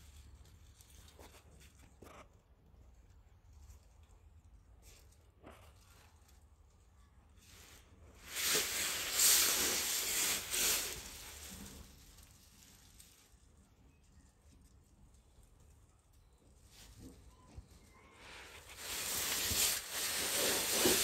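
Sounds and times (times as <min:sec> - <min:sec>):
loud rustling hiss: 0:08.2 - 0:13.0, 0:18.3 - 0:21.0.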